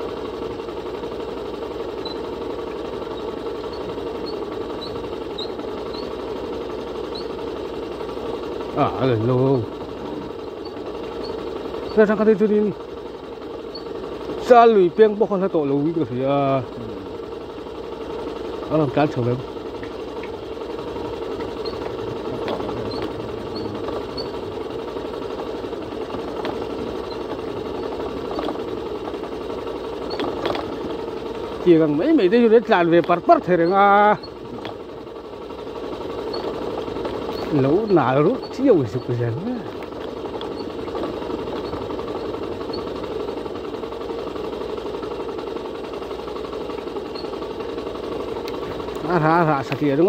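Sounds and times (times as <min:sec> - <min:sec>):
vehicle engine running: 0:00.0 - 0:50.0
knocks and rattles: 0:18.8 - 0:35.1.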